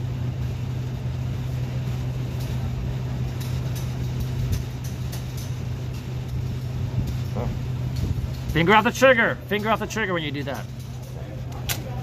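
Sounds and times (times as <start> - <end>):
ventilation fans droning: 0.0 - 12.0.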